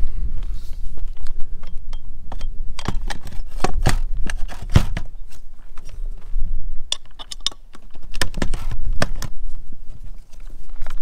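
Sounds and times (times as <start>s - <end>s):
metallic clicks and clinks: 6.9s - 8.0s.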